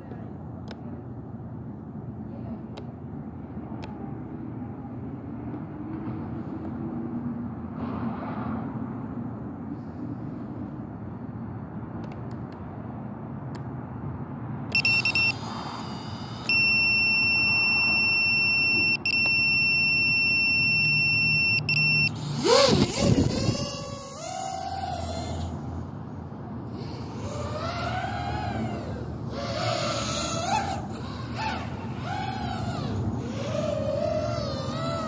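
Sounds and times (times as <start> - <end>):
steady high-pitched beep: 14.7 - 22.2
short electronic beep: 14.8 - 15.4, 16.5 - 22.2
drone propeller whine: 14.8 - 17.9, 22.0 - 35.0.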